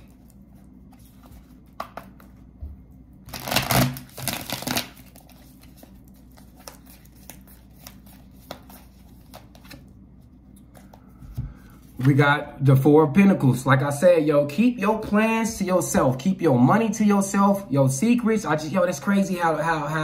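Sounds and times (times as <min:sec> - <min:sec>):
cards being shuffled: 0:00.0 - 0:02.5, 0:03.3 - 0:09.9.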